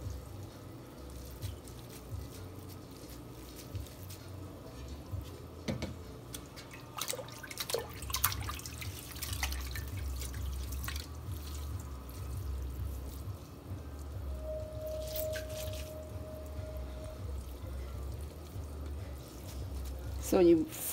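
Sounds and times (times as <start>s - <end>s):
water dripping into sink: 6.3s - 12.8s
steady low hum: 8.4s - 20.9s.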